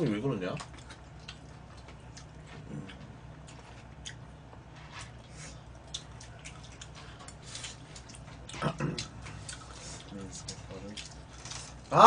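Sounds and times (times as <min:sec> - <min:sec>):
low steady hum: 0:00.0 - 0:12.0
chewing: 0:00.4 - 0:11.9.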